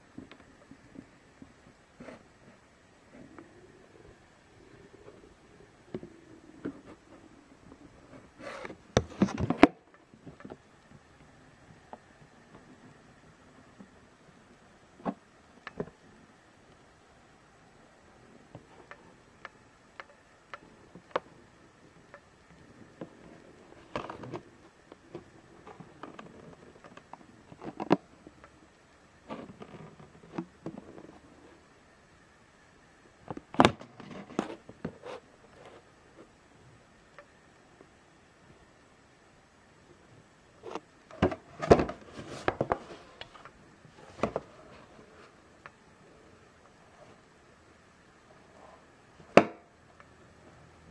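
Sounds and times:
rustling: 0.0 - 16.8, 39.9 - 47.6.

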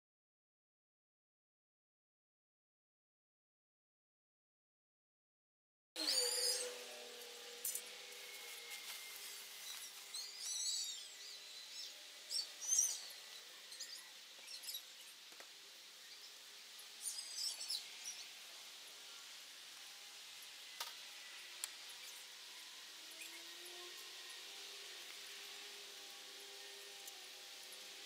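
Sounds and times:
small birds chirping: 6.0 - 6.8, 7.6 - 19.5
faint outdoor hiss: 6.0 - 28.0.

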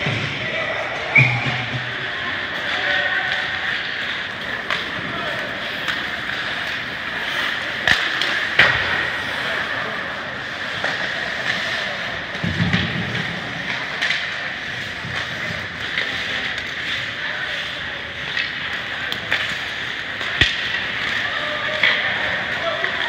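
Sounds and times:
stick and puck clacks: 1.2 - 23.0
skates hissing on ice: 4.3 - 12.3.

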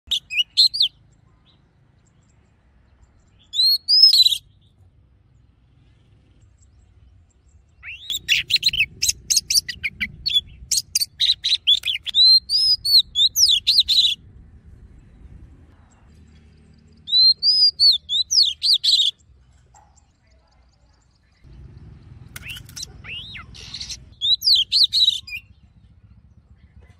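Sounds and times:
bird song whistles: 0.1 - 1.0, 3.4 - 4.6, 7.8 - 14.2, 17.0 - 19.2, 22.4 - 25.7.

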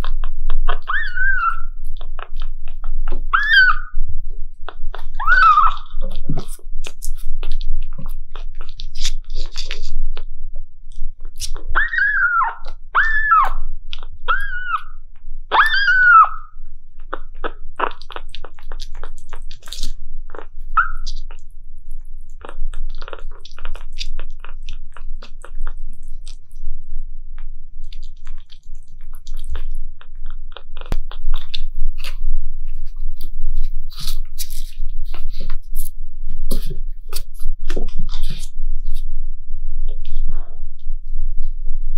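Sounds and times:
kitten meowing: 0.7 - 1.7, 3.2 - 4.0, 5.1 - 6.2, 11.7 - 16.5
wet licking and smacking: 17.0 - 21.5, 22.3 - 26.7, 27.4 - 38.6.

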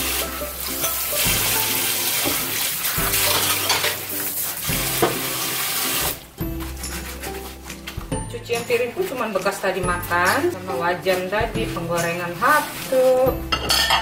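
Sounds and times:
plates clinking: 3.1 - 4.1, 13.5 - 14.0
tap running into steel sink: 5.0 - 5.3.

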